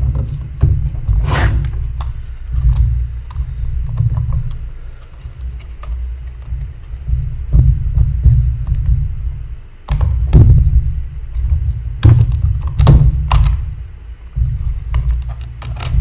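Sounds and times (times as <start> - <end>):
low rumble: 0.0 - 16.0
small parts knocking and clicking: 14.6 - 16.0.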